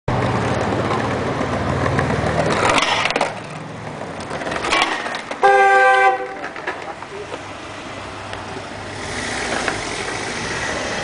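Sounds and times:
skateboard wheels rolling on paving: 0:00.1 - 0:11.0
car horn honk: 0:05.4 - 0:06.5.

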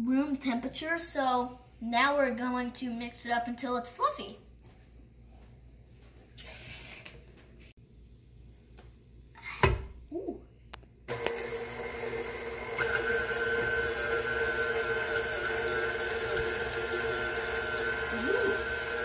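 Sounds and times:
stand mixer running: 0:11.1 - 0:19.0.

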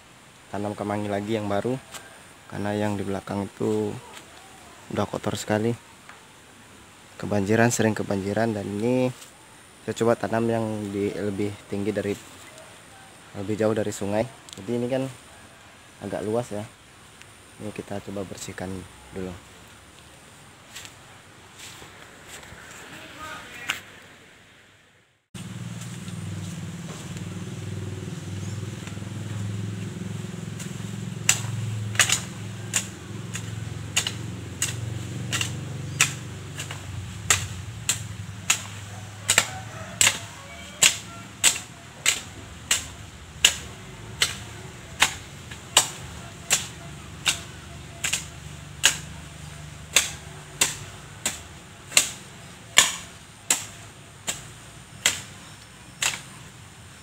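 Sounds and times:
blade chopping weeds: 0:25.4 - 0:56.5.

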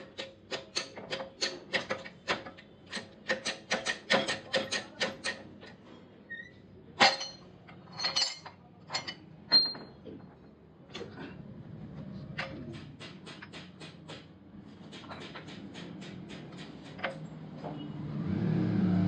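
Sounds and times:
sharp metal taps: 0:00.0 - 0:05.5, 0:12.4 - 0:17.2
metal clanks ringing: 0:07.0 - 0:10.0.

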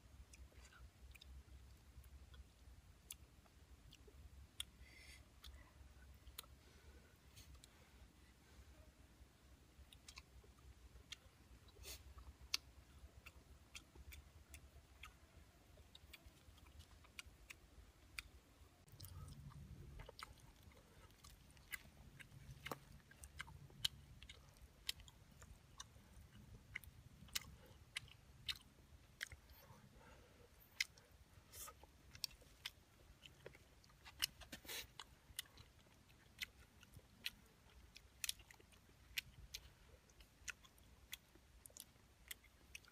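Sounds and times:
chewing clicks and smacks: 0:09.8 - 0:42.9.

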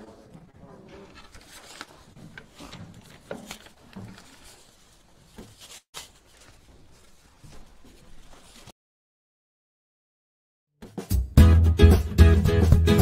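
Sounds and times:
papers rustling: 0:00.0 - 0:08.7.

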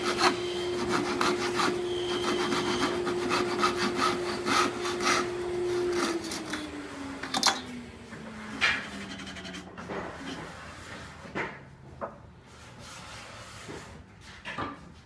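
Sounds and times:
hand tool rasping wood: 0:00.0 - 0:06.6, 0:08.7 - 0:10.5
machine hum winding down: 0:04.8 - 0:09.7.

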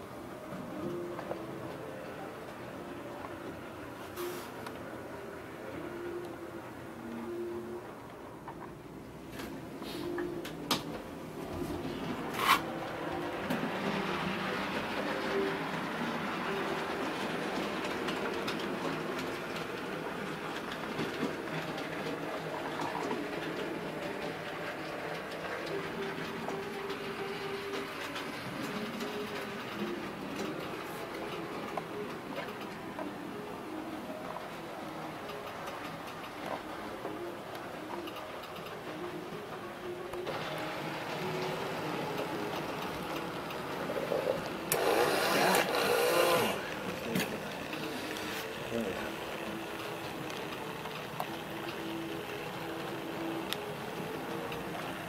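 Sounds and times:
steady background hum: 0:00.0 - 0:55.0
wheels rattling on rails: 0:10.6 - 0:55.0
model locomotive running on track: 0:12.0 - 0:55.0
model locomotive motor whirring: 0:40.4 - 0:55.0.

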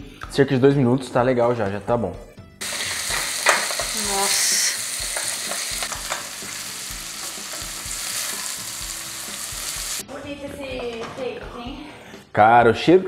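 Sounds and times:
food sizzling in a pot: 0:02.6 - 0:10.0.

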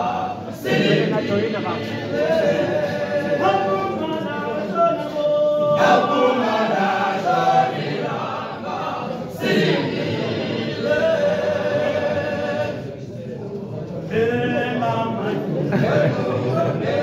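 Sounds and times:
choir singing unaccompanied: 0:00.0 - 0:17.0.

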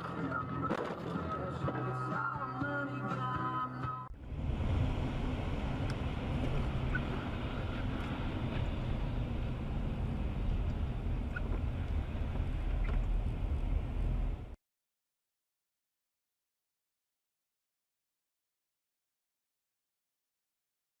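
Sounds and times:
tyre and road noise: 0:00.0 - 0:14.6
car driving on wet highway: 0:04.1 - 0:14.6.

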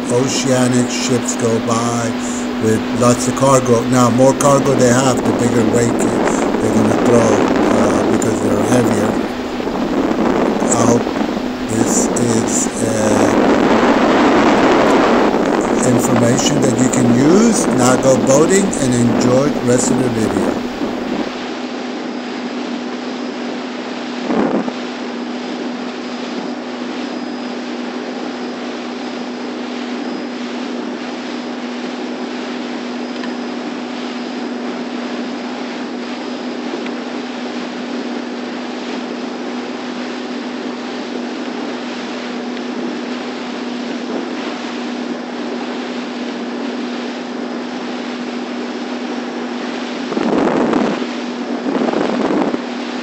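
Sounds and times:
wind noise on microphone: 0:00.0 - 0:21.6, 0:24.2 - 0:25.8, 0:49.2 - 0:53.0
small boat engine running: 0:00.0 - 0:53.0.

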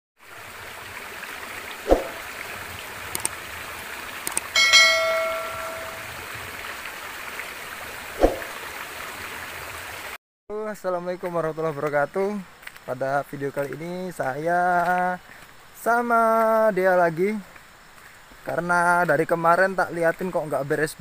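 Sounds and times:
stream water rushing: 0:00.2 - 0:10.2
bell-like notification chime: 0:04.6 - 0:06.1.

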